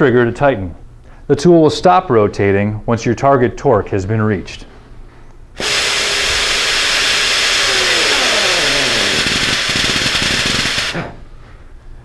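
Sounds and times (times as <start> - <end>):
pneumatic torque wrench whining: 5.6 - 11.2.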